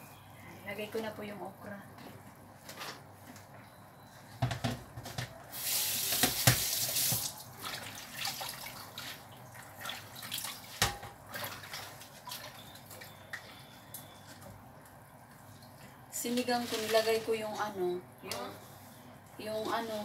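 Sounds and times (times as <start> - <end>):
tap running into sink: 6.1 - 7.3.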